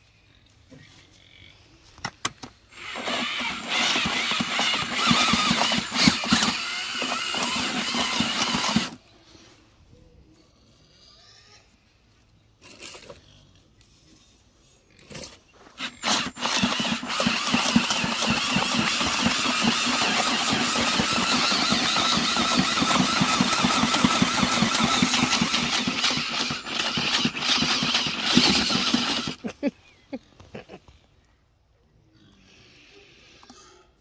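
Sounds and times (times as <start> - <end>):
drill paddle mixer whining: 2.7 - 9.0, 15.8 - 29.5.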